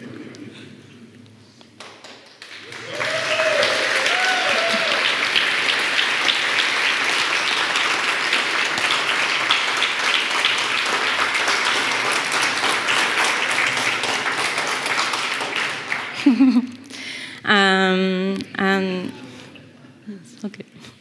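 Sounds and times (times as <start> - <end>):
audience applauding: 1.8 - 16.7.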